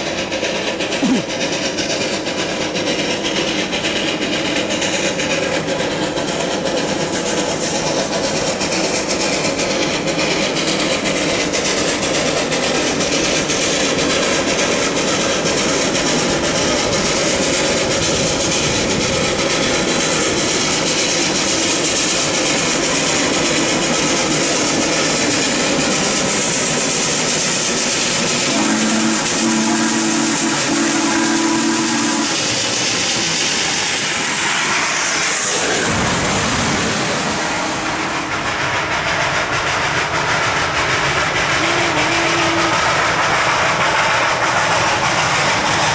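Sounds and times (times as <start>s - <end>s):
steam locomotive hiss and exhaust: 0.0s - 45.9s
steam whistle chord: 28.5s - 32.4s.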